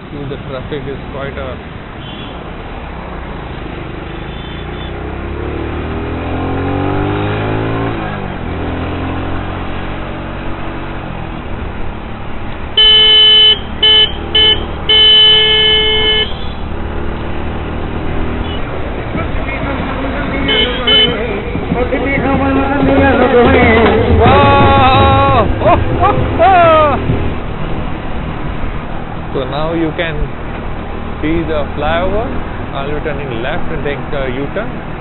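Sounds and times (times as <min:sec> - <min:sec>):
road traffic: 0:00.0 - 0:35.0
vehicle horn honking: 0:02.0 - 0:02.4, 0:04.1 - 0:05.0, 0:12.8 - 0:16.7, 0:18.4 - 0:18.7, 0:20.3 - 0:21.4
motorcycle engine accelerating: 0:03.6 - 0:12.1, 0:16.6 - 0:27.6.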